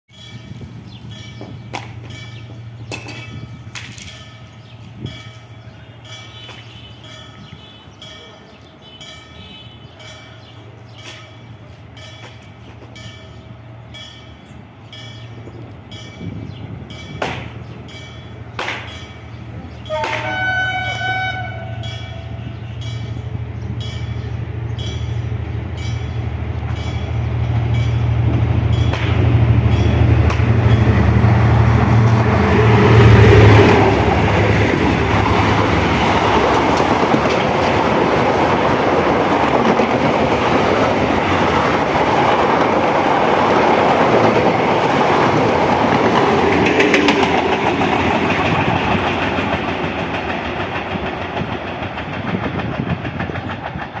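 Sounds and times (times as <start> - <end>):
locomotive engines rumbling: 0.1 - 54.0
multi-tone train horn: 5.8 - 10.0, 19.8 - 22.9.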